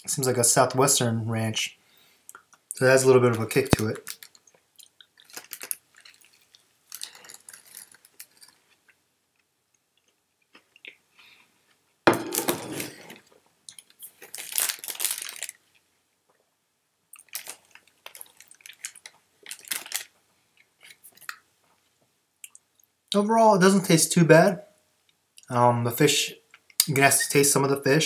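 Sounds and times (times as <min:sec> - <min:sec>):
chewing and crunching food: 0:04.0 - 0:11.9, 0:17.1 - 0:23.0
paper wrapper rustling: 0:05.2 - 0:08.8, 0:12.3 - 0:15.7, 0:17.2 - 0:20.2.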